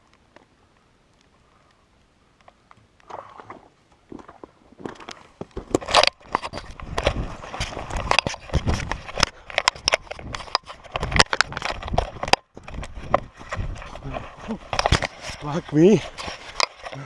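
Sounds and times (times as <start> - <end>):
camera handling knocks and rustles: 4.8 - 14.0, 14.7 - 15.4.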